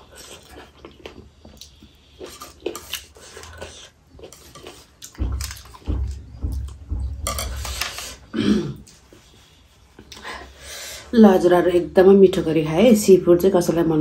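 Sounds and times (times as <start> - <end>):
chewing with small clicks: 0.0 - 5.9
low thumps: 5.1 - 7.7
person burping: 8.3 - 8.9.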